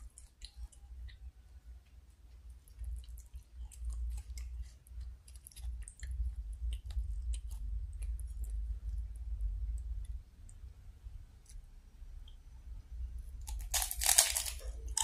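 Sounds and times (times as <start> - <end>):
low rumble: 3.7 - 13.5.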